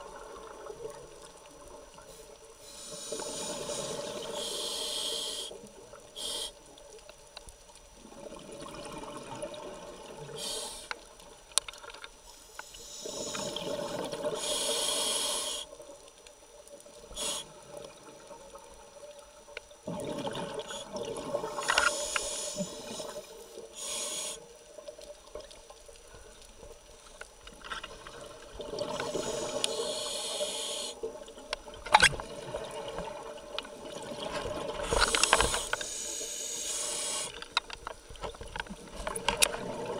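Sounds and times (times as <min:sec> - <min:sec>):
hissing regulator inhalations: 0:02.1 - 0:06.7, 0:10.4 - 0:11.0, 0:12.4 - 0:13.7, 0:14.3 - 0:15.8, 0:17.1 - 0:17.7, 0:21.4 - 0:24.6, 0:29.0 - 0:31.1, 0:34.8 - 0:37.6.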